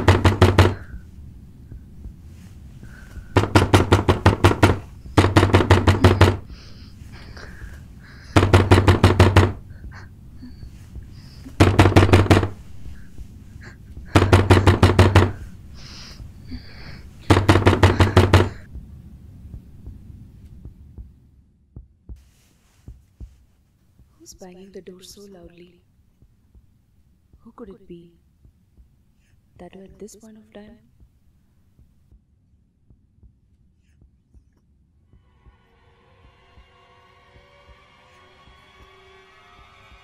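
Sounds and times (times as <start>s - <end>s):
banging on wooden door: 0.0s - 1.0s, 3.4s - 6.5s, 8.4s - 9.6s, 11.5s - 12.6s, 14.1s - 15.4s, 17.3s - 18.6s.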